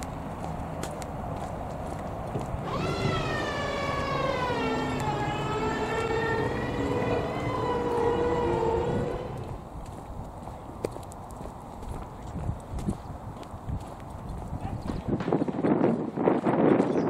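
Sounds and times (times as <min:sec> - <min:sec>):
siren winding: 0:02.6 - 0:09.6.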